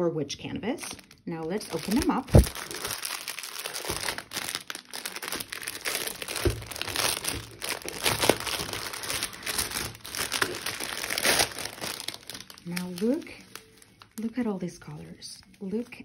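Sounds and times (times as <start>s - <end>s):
plastic bag crinkling: 0.8s - 14.4s.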